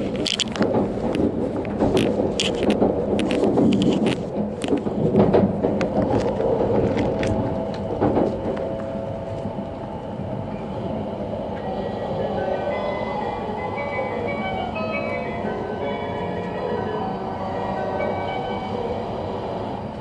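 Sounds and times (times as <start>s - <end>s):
wheels rumbling on rail: 0.0s - 20.0s
sharp clicks and knocks: 0.1s - 8.9s.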